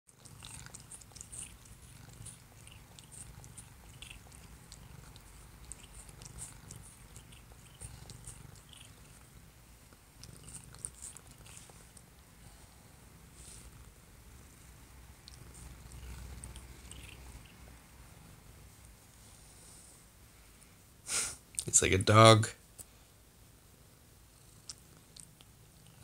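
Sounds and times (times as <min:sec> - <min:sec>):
cat purring: 0:00.1 - 0:20.0, 0:23.7 - 0:26.0
cat licking clicks and smacks: 0:00.2 - 0:08.9.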